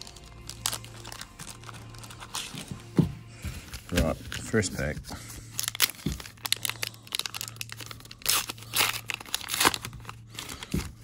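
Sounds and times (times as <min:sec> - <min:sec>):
foil wrapper tearing and crinkling: 0:00.0 - 0:02.6, 0:05.5 - 0:11.0.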